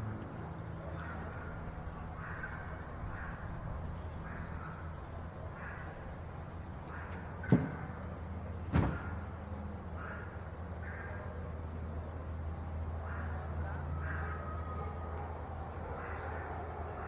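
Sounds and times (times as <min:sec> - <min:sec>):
sharp knocks: 0:07.4 - 0:07.9, 0:08.7 - 0:09.1
owls raspy calls: 0:13.0 - 0:14.8, 0:15.9 - 0:17.0.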